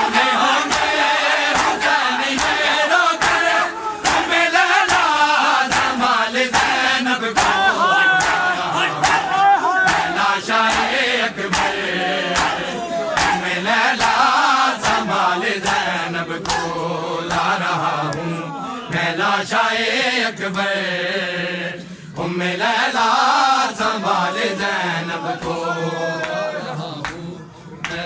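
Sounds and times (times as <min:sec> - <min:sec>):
men chanting together: 0:00.0 - 0:28.0
hands slapping chests: 0:00.1 - 0:18.3.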